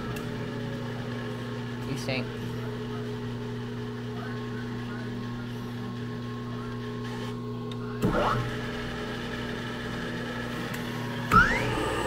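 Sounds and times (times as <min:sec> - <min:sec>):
electrical hum of phase converter: 0:00.0 - 0:12.0
spindle motor running: 0:00.0 - 0:12.0.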